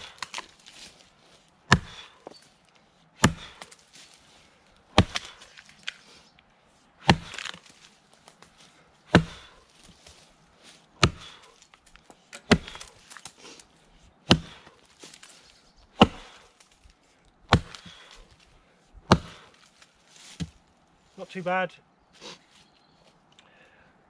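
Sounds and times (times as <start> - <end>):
axe chopping into log: 0.0 - 0.5, 1.7 - 2.3, 3.2 - 3.8, 5.0 - 5.7, 7.0 - 7.7, 9.1 - 9.6, 11.0 - 11.5, 12.4 - 13.3, 14.3 - 15.2, 16.0 - 16.5, 17.5 - 18.2, 19.1 - 19.6.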